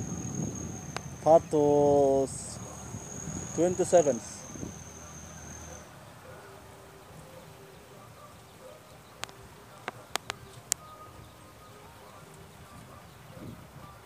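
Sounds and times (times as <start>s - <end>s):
insect buzzing: 0.0s - 1.3s, 2.6s - 5.7s
high whine: 0.0s - 6.0s
sharp clicks: 9.2s - 10.8s.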